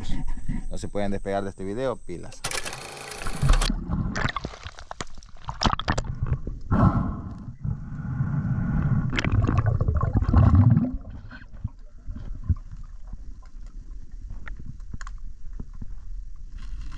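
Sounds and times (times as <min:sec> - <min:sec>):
underwater rumbling and gurgling: 0:03.7 - 0:16.9.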